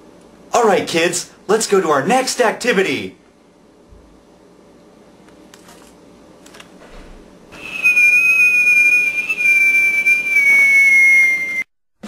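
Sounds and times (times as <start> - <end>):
loud high whistle: 7.6 - 11.7.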